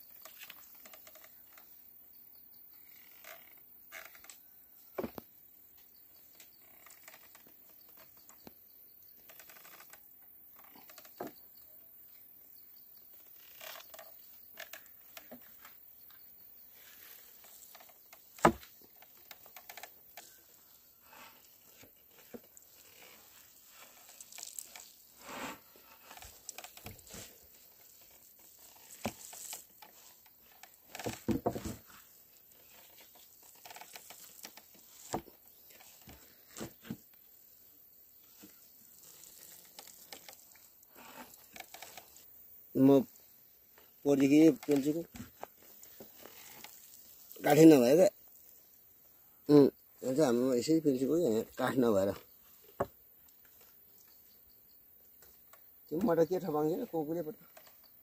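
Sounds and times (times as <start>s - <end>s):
wooden press creaking: 17.0s - 20.6s, 28.6s - 32.0s, 32.6s - 37.0s.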